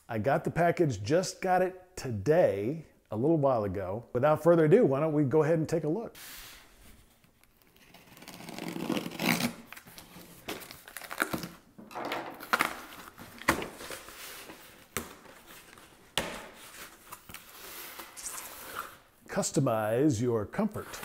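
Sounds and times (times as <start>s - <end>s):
packing tape tearing: 7.4s - 11.6s, 12.3s - 14.5s, 16.6s - 19.0s
cardboard crinkling and scraping: 12.3s - 19.0s.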